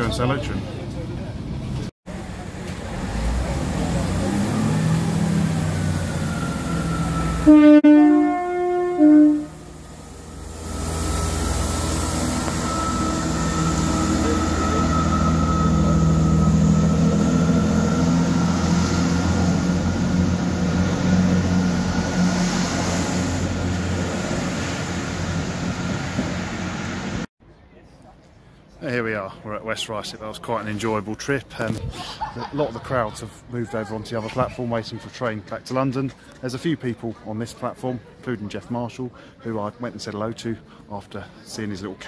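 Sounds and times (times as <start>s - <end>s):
train diesel engine drone: 0.6s - 27.3s
train two-tone horn: 7.1s - 9.9s, 10.6s - 18.2s.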